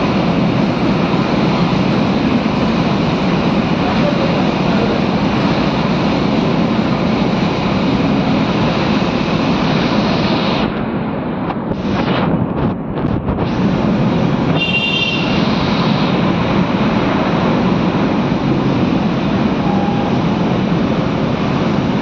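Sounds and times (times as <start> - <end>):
brief high tone: 19.6 - 20.5.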